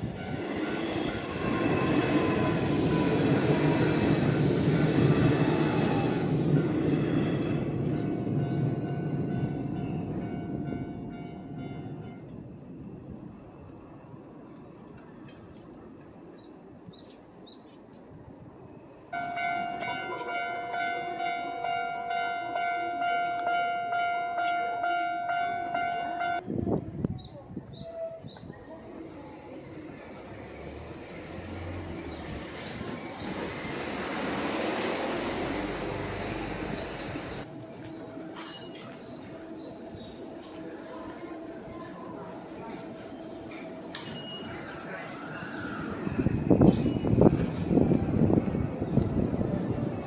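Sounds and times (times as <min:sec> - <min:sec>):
train wheels rumbling on rails: 0:00.0 - 0:50.0
crossing warning bell ringing: 0:07.8 - 0:12.6, 0:19.2 - 0:26.5, 0:42.2 - 0:44.9.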